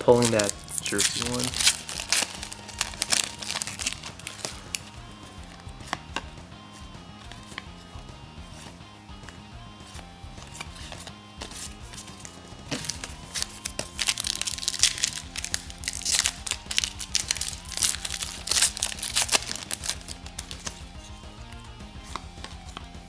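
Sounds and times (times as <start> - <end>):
foil wrappers crinkling and tearing: 0.0 - 5.0, 12.2 - 20.9
background music with low beat: 0.0 - 23.0.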